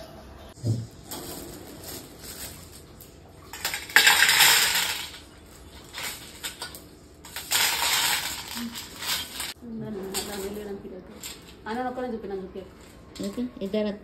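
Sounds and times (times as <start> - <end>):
small objects clinking on table: 3.5 - 10.6
rattling rustling burst: 7.2 - 9.6.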